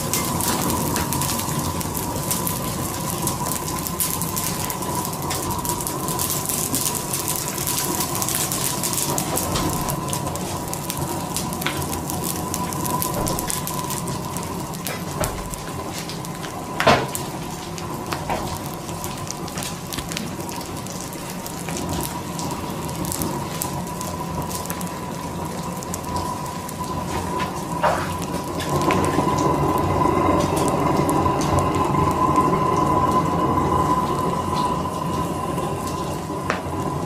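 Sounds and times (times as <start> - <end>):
fire crackling and snapping: 0.0 - 37.0.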